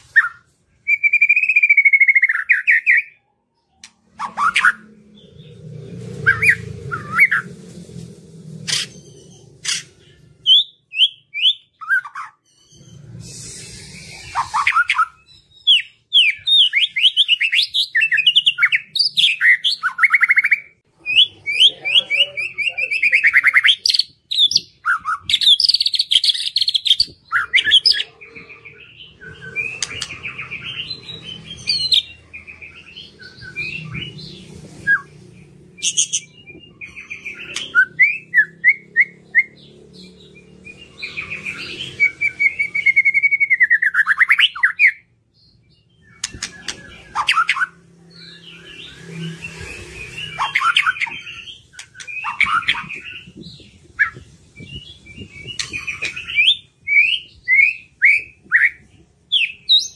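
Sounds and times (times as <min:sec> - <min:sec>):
bird whistled song and trills: 0:00.0 - 0:07.5, 0:08.7 - 0:59.9.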